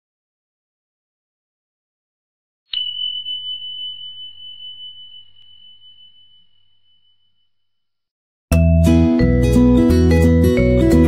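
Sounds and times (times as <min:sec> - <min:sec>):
high bell ding: 0:02.7 - 0:07.6.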